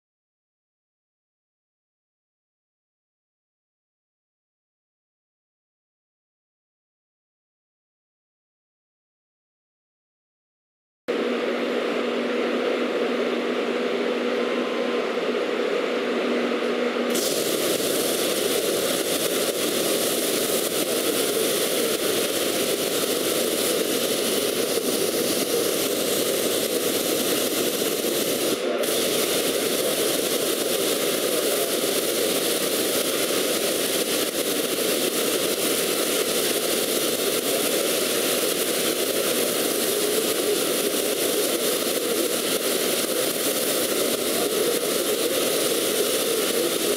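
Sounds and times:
low steady hum: 11.1s - 30.1s
plasma torch hissing roar: 17.1s - 46.9s.

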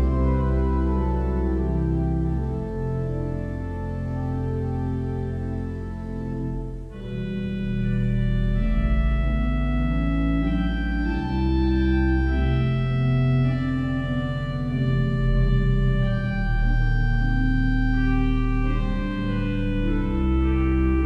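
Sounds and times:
organ playing held chords: 0.0s - 21.0s.

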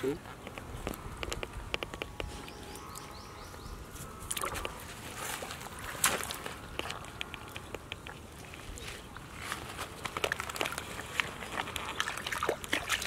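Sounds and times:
wet mud squelching: 4.3s - 13.0s.

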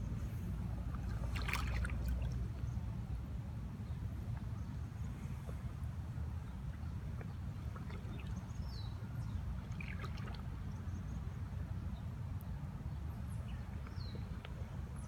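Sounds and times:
steady low rumble: 0.0s - 7.8s.

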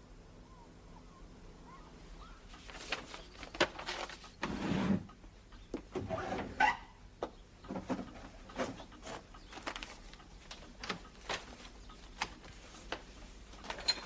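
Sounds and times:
paper rustling: 2.5s - 4.6s, 8.6s - 13.8s.

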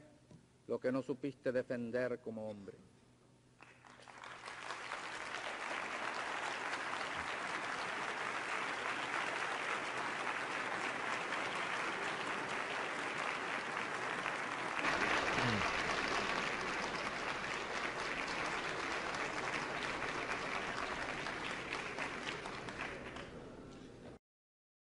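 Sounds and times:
audience applauding: 3.6s - 23.4s.

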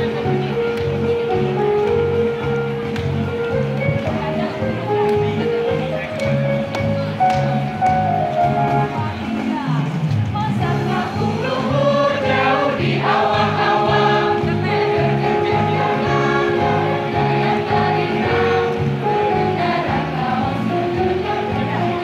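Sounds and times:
choir singing: 10.6s - 22.0s.

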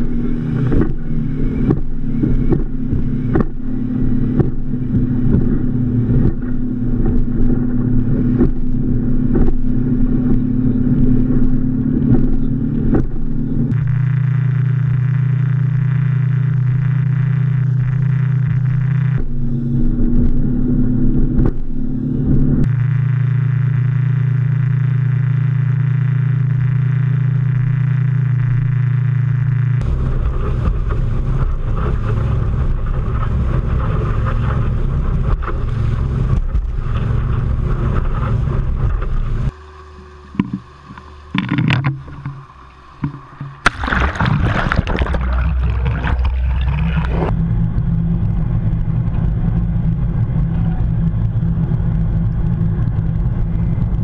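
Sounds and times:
water and wind rushing: 0.0s - 23.0s, 29.8s - 54.0s
muffled underwater rumble: 0.0s - 54.0s
outboard motor running: 0.0s - 54.0s
sharp water splashes: 42.3s - 47.3s.

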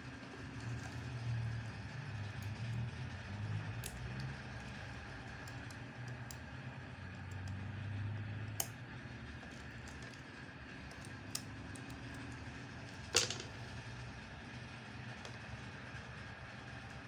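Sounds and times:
steady low hum: 0.0s - 17.0s
metal tweezers clicking: 3.8s - 4.3s, 8.6s - 8.8s.

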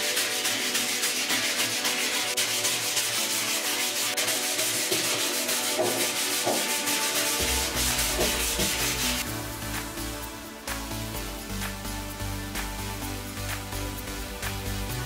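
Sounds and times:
sandpaper rubbing on wood: 0.0s - 9.3s.

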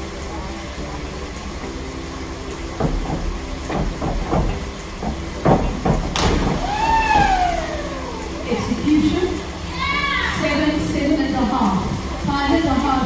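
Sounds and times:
steady background hiss: 0.0s - 13.0s
divers splashing into water: 2.3s - 10.0s
springboard knocks and thuds: 2.8s - 7.7s.

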